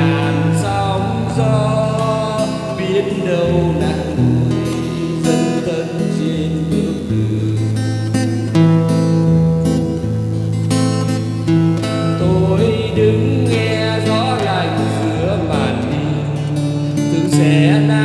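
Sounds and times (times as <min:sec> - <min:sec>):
acoustic guitar bolero: 0:00.0 - 0:18.0.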